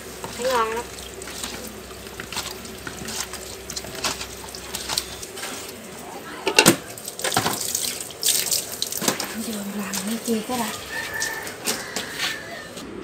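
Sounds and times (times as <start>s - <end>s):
snail shells clicking and scraping: 0.2s - 5.3s.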